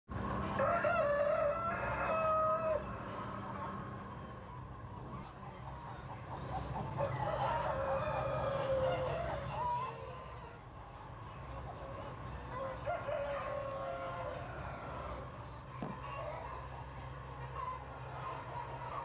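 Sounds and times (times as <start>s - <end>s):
rooster crowing: 0.5s - 3.4s, 6.9s - 10.6s, 12.5s - 15.3s.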